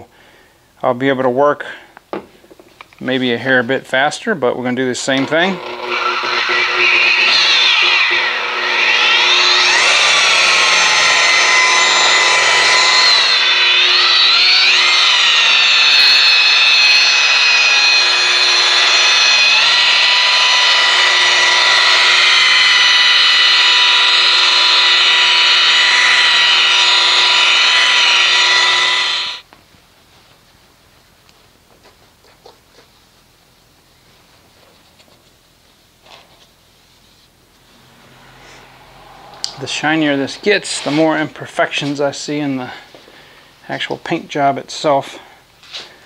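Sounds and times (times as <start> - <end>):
rotary polisher whine: 5.0 - 29.5, 37.5 - 44.0.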